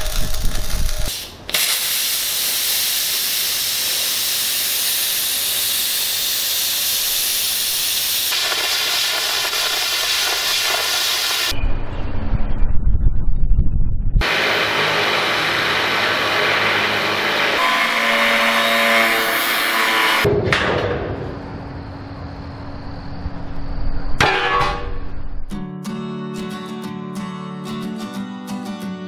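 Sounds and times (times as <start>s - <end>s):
angle grinder on steel: 14.2s - 20.3s
music: 25.5s - 29.0s.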